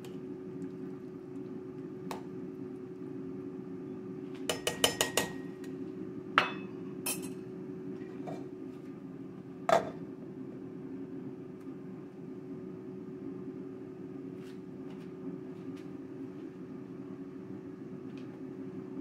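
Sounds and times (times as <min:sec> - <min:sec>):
steady low hum: 0:00.0 - 0:19.0
glass lid clanking on pot: 0:06.4 - 0:07.4
metal ladle clinking on pot: 0:06.4 - 0:07.4.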